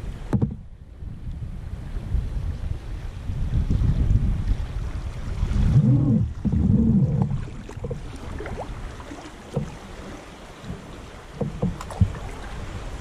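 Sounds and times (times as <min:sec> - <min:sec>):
wind buffeting microphone: 0:00.0 - 0:13.0
knocks on kayak: 0:00.3 - 0:00.7, 0:09.5 - 0:09.8, 0:10.6 - 0:12.2
water lapping: 0:02.8 - 0:13.0
small water splashes: 0:04.8 - 0:13.0.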